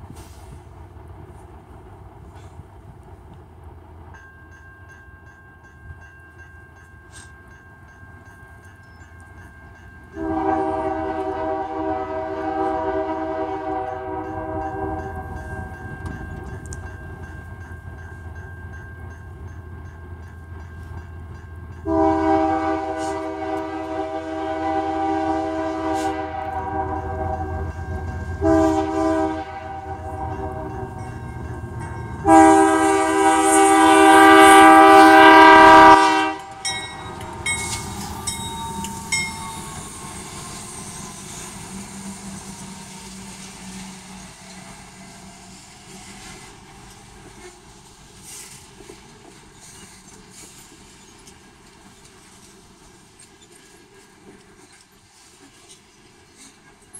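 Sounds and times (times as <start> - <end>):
train rumbling: 0.0 - 56.9
train air horn blasts: 10.2 - 15.6, 21.8 - 31.0, 32.2 - 46.5
level-crossing bell ringing: 30.0 - 32.4, 36.6 - 41.4.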